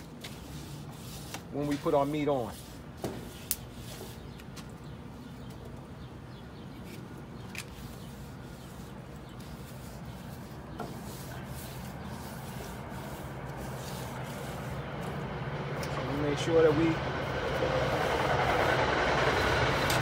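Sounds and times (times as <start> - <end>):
tongs scraping grill grates: 6.9 - 15.3
approaching train rumble: 11.8 - 20.0.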